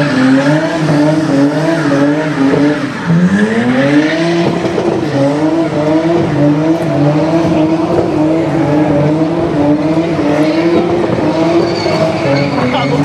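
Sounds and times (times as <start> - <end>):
car engine at steady revs: 0.0 - 13.0
tyres screeching on tarmac: 10.1 - 13.0.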